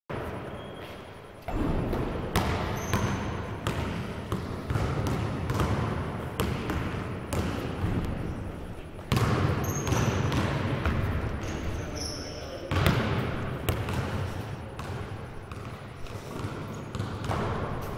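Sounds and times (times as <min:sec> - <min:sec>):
basketball bouncing on court floor: 0:01.5 - 0:08.4, 0:09.0 - 0:17.9.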